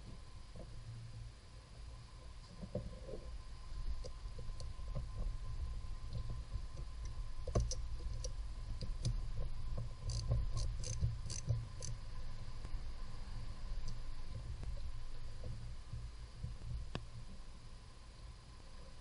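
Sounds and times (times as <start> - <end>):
low hum: 0.0 - 19.0
socket ratchet clicking: 10.0 - 12.0.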